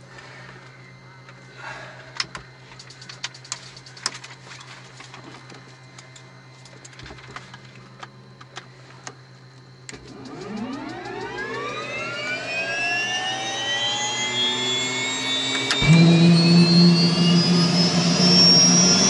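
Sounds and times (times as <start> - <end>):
steady low hum: 0.0 - 19.0
turbine whine spooling up: 9.9 - 19.0.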